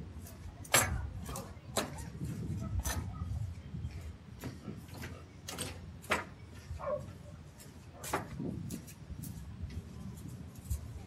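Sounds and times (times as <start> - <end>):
low wind rumble: 0.0 - 11.0.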